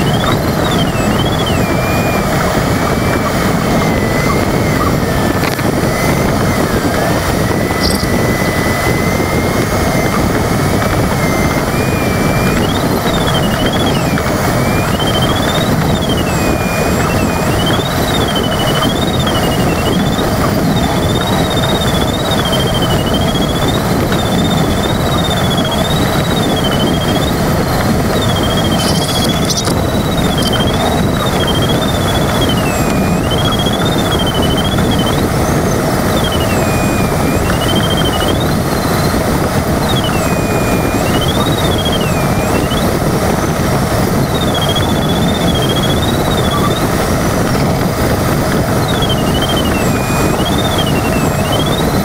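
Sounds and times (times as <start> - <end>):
airflow rushing in cockpit: 0.0 - 52.0
electronic variometer tone: 0.0 - 52.0.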